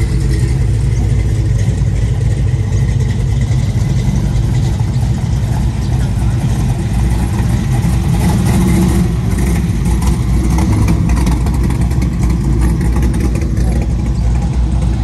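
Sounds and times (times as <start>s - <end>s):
car engine rumbling past: 0.0s - 15.0s.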